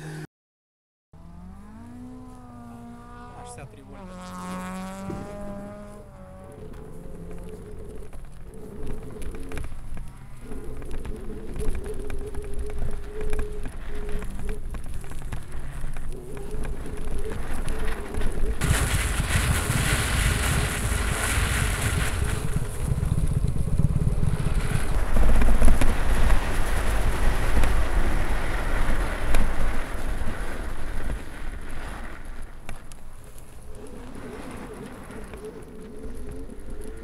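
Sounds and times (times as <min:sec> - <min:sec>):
tyres on snow: 0:01.2 - 0:37.0
wind buffeting microphone: 0:03.1 - 0:37.0.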